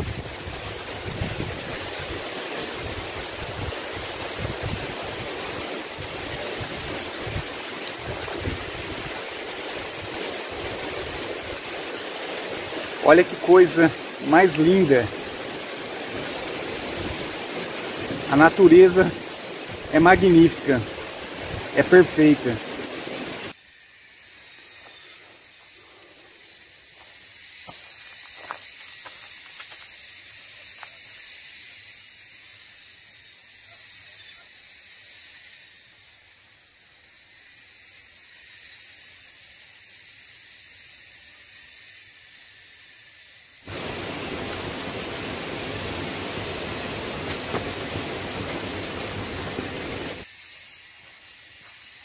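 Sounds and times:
even rushing noise: 0:00.0 - 0:23.5, 0:43.7 - 0:50.3
steady high-pitched hiss: 0:00.0 - 0:52.0.

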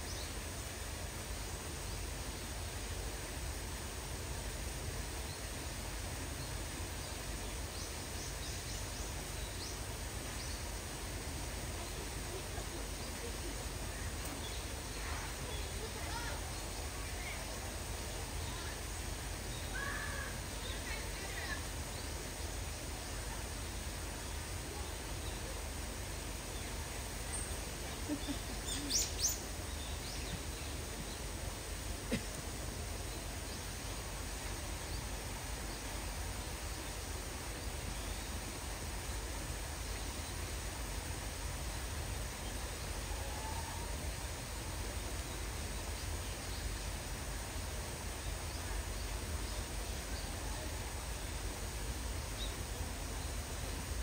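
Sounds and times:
outdoor background noise: 0:00.0 - 0:54.0.

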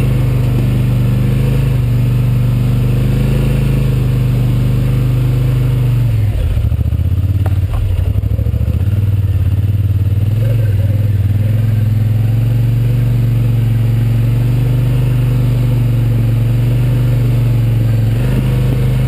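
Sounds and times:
quad bike engine running: 0:00.0 - 0:19.0.

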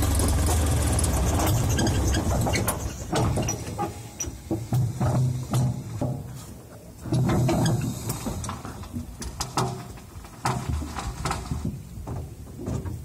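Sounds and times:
excavator engine surging: 0:00.0 - 0:05.9
metallic clanks and creaks: 0:00.0 - 0:13.0.

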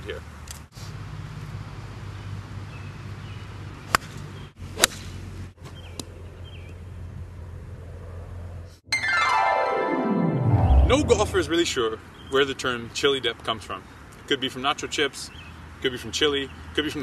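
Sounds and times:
golf club striking ball: 0:04.8 - 0:05.2.

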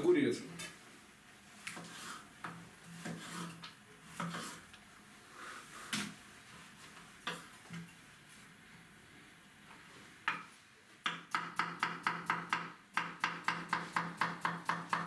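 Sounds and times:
knife scraping: 0:01.6 - 0:04.6.

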